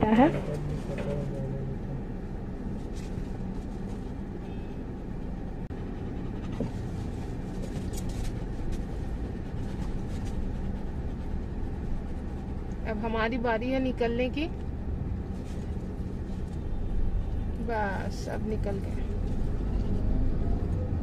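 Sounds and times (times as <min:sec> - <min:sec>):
car engine low rumble: 0:00.0 - 0:21.0.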